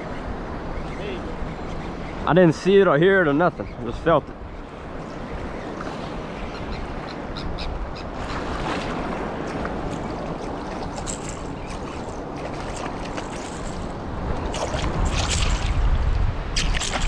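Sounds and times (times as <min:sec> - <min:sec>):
surf churning around legs: 0:00.0 - 0:17.0
fish splashing at surface: 0:10.7 - 0:15.8, 0:16.6 - 0:17.0.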